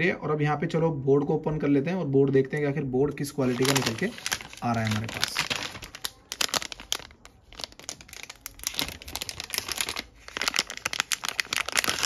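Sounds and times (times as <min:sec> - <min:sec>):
plastic bag crinkling: 0:03.3 - 0:12.0.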